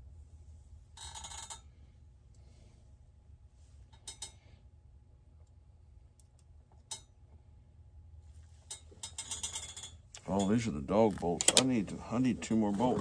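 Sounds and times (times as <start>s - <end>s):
low steady hum: 0.0s - 13.0s
small metal bolts clinking: 3.9s - 4.4s, 8.7s - 11.9s.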